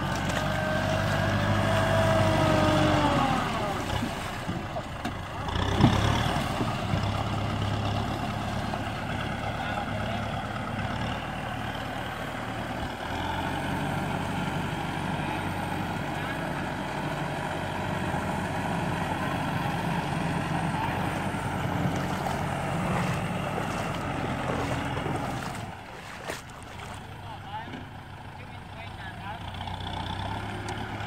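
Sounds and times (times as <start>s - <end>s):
tractor diesel engine under load: 0.0s - 31.0s.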